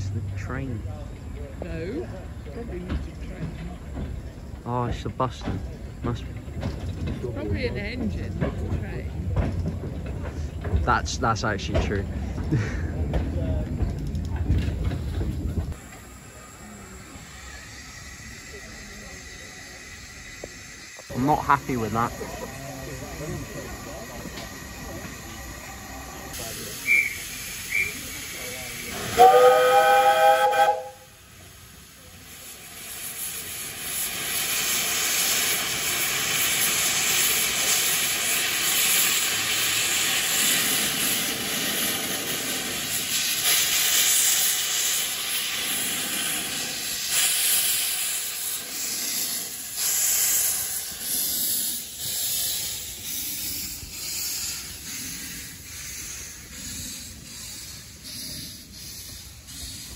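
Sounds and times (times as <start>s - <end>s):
train cars clattering past: 0.0s - 16.4s
loud hiss of steam: 15.7s - 59.9s
steam locomotive whistle: 26.8s - 28.1s, 29.0s - 31.2s.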